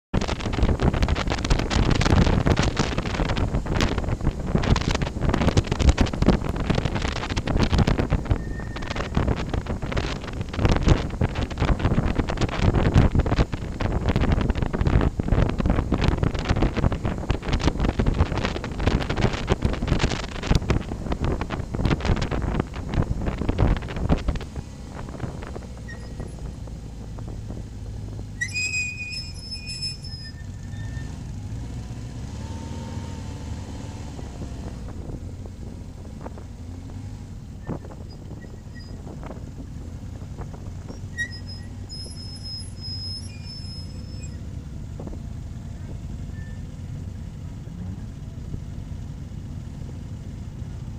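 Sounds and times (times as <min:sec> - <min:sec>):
motorcycle engine running: 0:00.2 - 0:28.4, 0:44.4 - 0:50.9
wind buffeting microphone: 0:00.2 - 0:48.8
brief high squeals: 0:08.2 - 0:09.2, 0:25.8 - 0:26.6, 0:28.4 - 0:31.1, 0:40.9 - 0:44.4, 0:46.3 - 0:46.7.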